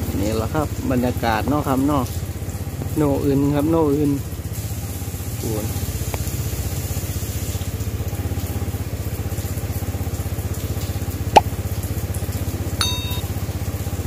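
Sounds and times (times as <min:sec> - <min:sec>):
small engine idling: 0:00.0 - 0:14.0
brief high beep: 0:12.8 - 0:13.3.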